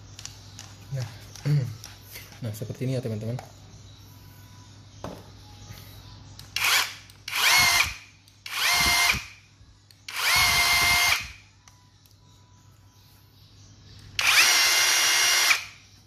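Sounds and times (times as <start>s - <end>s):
rotary hammer motor whine: 14.2s - 15.7s.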